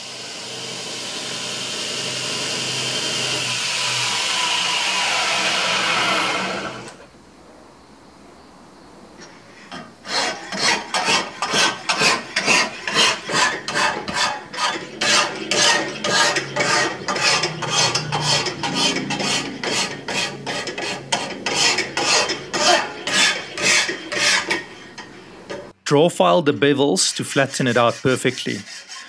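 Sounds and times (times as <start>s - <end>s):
file rasping on steel blade: 9.7s - 25.2s, 27.1s - 29.0s.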